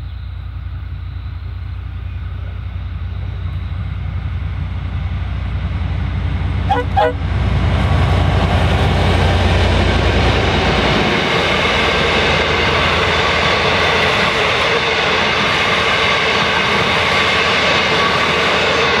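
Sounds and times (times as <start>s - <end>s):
diesel locomotive engine drone: 0.0s - 19.0s
train wheels on rails: 0.0s - 19.0s.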